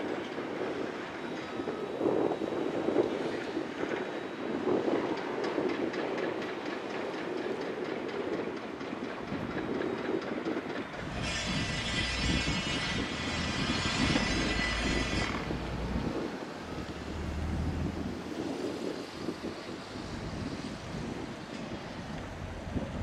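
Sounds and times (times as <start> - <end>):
excavator engine and hydraulics: 8.6 - 23.0
deep rumble: 13.5 - 18.2.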